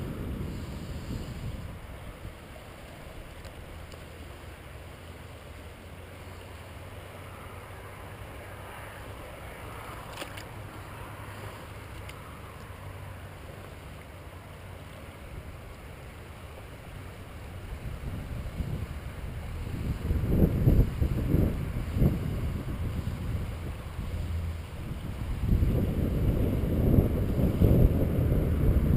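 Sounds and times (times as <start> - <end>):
river water flowing around legs: 0.0 - 28.9
faint clicks: 3.3 - 4.1, 9.8 - 10.8, 11.8 - 12.8.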